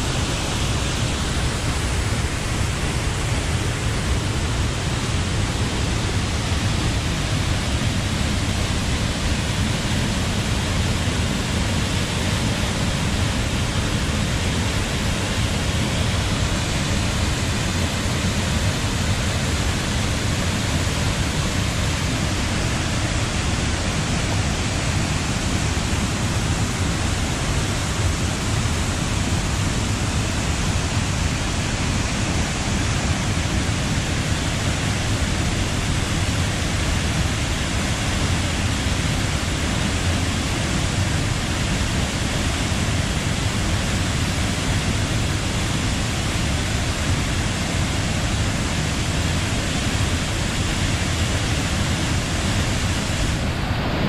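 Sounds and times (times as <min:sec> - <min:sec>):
waterfall rushing: 0:00.0 - 0:54.0.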